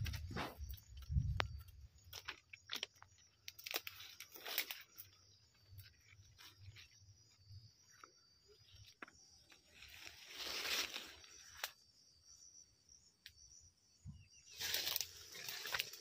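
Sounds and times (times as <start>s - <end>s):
insects humming: 0.0s - 16.0s
stalk snapping: 3.5s - 4.8s
leaves rustling as handled: 3.5s - 7.0s, 9.6s - 11.8s, 14.5s - 16.0s.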